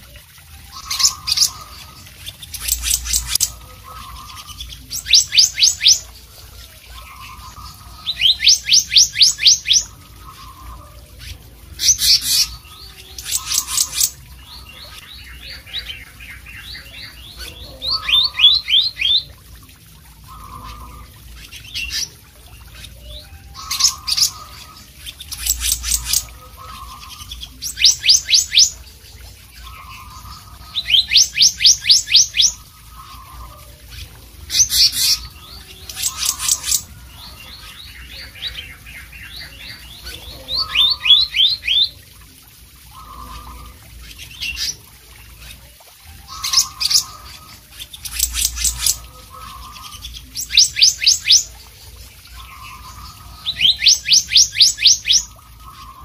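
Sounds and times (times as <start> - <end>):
bird whistling song: 4.1 - 6.1, 7.2 - 10.8, 30.8 - 33.3, 52.4 - 56.0.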